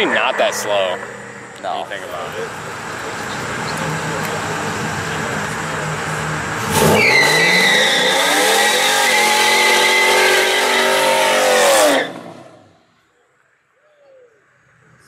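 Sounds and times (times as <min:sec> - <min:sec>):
car engine revving: 0:00.0 - 0:12.8
tyres squealing: 0:06.8 - 0:12.2.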